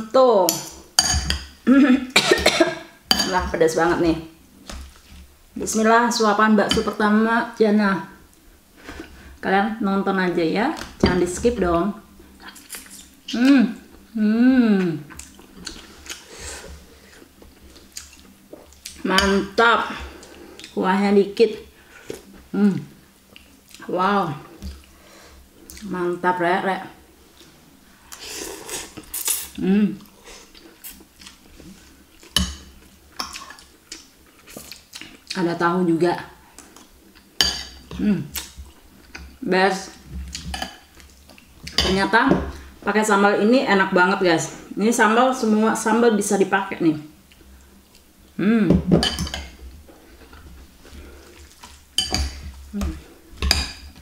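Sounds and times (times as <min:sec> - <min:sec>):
person humming: 0:13.3 - 0:15.1, 0:29.6 - 0:30.0, 0:48.4 - 0:48.9.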